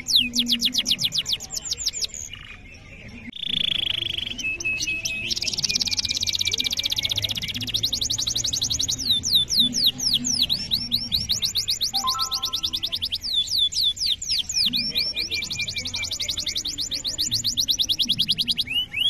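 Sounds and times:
canary singing trills: 0:00.0 - 0:19.0.

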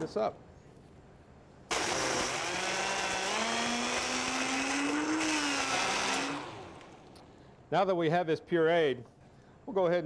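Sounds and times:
blender running: 0:01.7 - 0:07.1.

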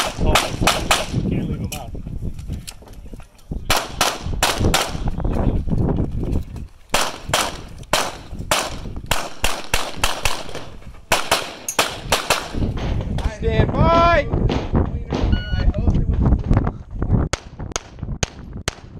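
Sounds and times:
pistol shots echoing: 0:00.0 - 0:01.2, 0:03.7 - 0:05.0, 0:06.9 - 0:12.6.

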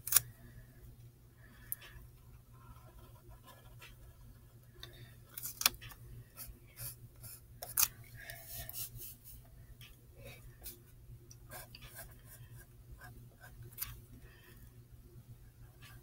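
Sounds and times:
pencil scratching on paper: 0:02.6 - 0:04.5, 0:06.4 - 0:07.5, 0:11.5 - 0:13.9.

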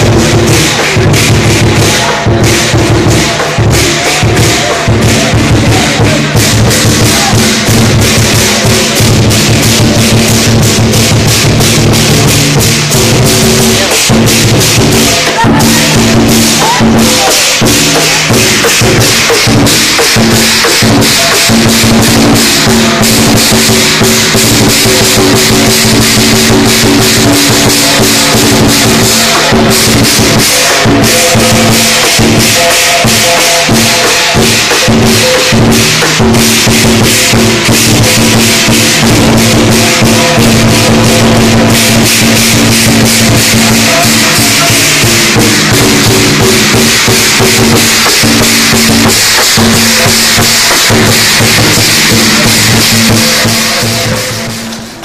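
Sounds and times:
big drum beaten fast: 0:00.0 - 0:55.0
clashing cymbals: 0:00.0 - 0:55.0.

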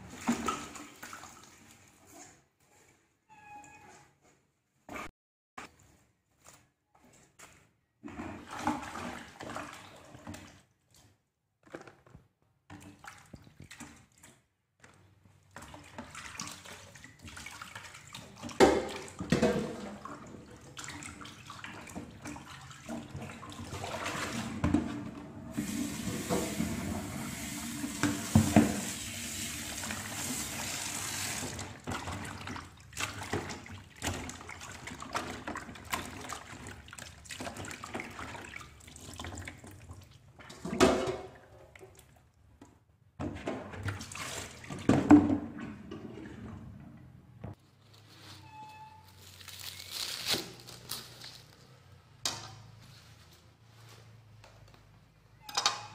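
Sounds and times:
water splashing in a basin: 0:00.0 - 0:02.4, 0:08.1 - 0:11.2, 0:12.7 - 0:42.4, 0:43.4 - 0:46.6.

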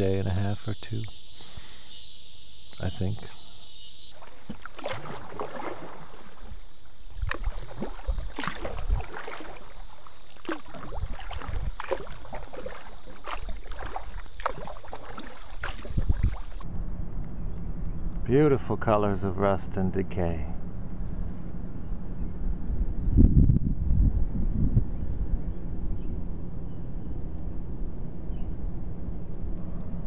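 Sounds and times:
water splashing against canoe: 0:02.7 - 0:16.6
river water rushing: 0:04.1 - 0:16.6
wind buffeting microphone: 0:04.5 - 0:16.6, 0:22.6 - 0:26.2.

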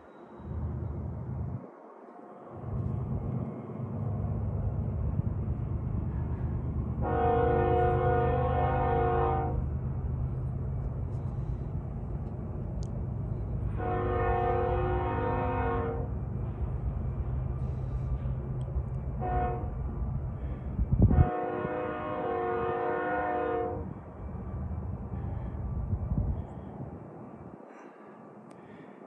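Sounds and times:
train engines rumbling: 0:00.0 - 0:29.0
locomotive air horn blasts: 0:07.0 - 0:09.6, 0:13.8 - 0:16.1, 0:19.2 - 0:19.8, 0:21.0 - 0:23.9.

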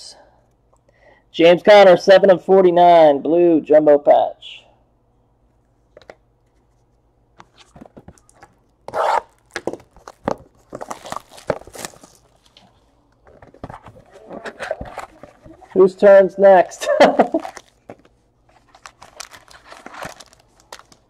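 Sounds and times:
hands handling cardboard box: 0:13.2 - 0:15.8.

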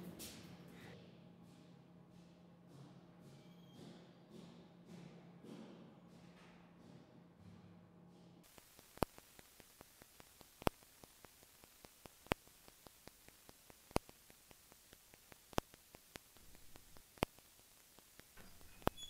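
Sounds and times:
fast faint ticks: 0:08.4 - 0:19.0
steady hiss: 0:08.4 - 0:19.0.

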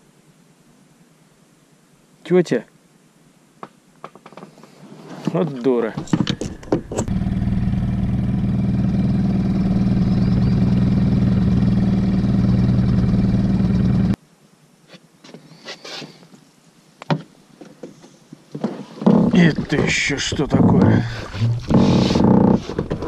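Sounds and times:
small boat motor running: 0:06.4 - 0:14.2.

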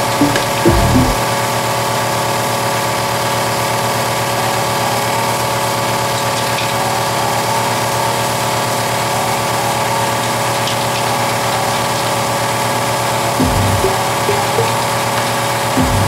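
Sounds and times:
steady machine hum: 0:13.4 - 0:15.1, 0:15.8 - 0:16.0.

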